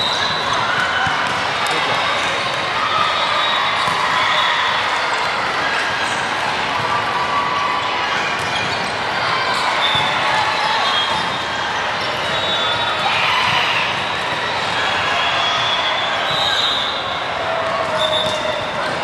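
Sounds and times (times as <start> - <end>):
murmur of voices: 0.0 - 19.0.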